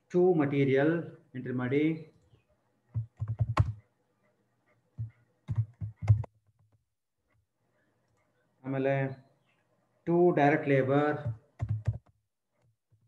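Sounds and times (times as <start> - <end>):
computer keyboard typing: 2.9 - 3.9, 5.0 - 6.8, 11.2 - 12.2.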